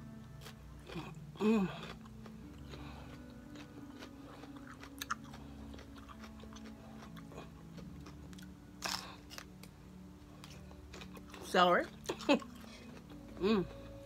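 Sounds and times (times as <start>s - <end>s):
celery being crunched: 8.8s - 9.7s.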